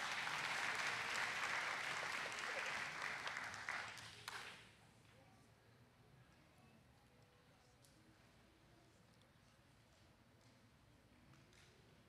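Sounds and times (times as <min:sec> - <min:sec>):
audience applauding: 0:00.0 - 0:04.5.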